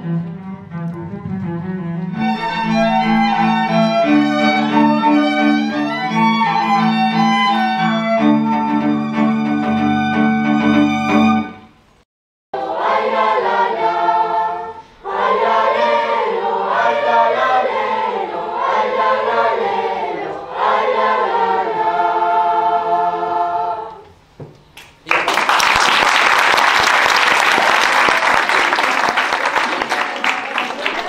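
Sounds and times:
children's choir singing: 2.1 - 8.4, 12.6 - 24.2
audience applauding: 24.9 - 31.0.

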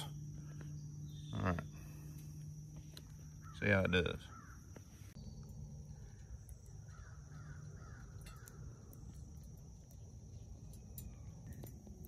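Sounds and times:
bird cawing: 3.3 - 4.9, 5.9 - 9.0.

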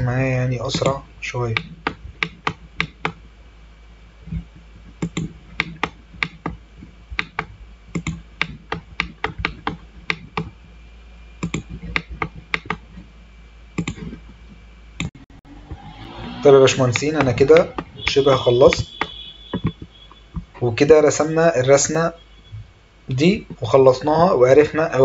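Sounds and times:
mouse and keyboard clicking: 5.0 - 6.6, 7.2 - 10.5, 11.4 - 12.8, 13.8 - 14.1.

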